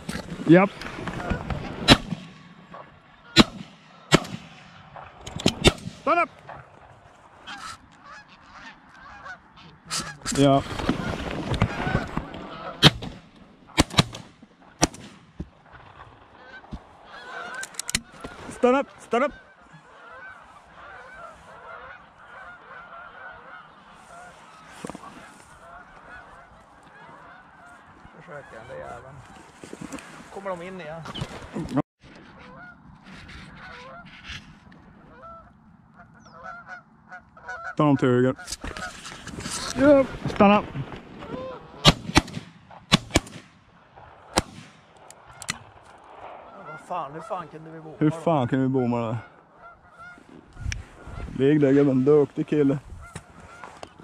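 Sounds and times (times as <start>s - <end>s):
geese honking: 1.0s - 2.0s, 2.6s - 5.0s, 5.6s - 14.0s, 15.6s - 31.3s, 32.2s - 42.0s, 45.2s - 54.0s
shotgun blasts: 1.8s - 2.6s, 3.4s - 4.8s, 5.4s - 6.1s, 12.8s - 15.4s, 41.8s - 43.6s, 44.3s - 44.9s.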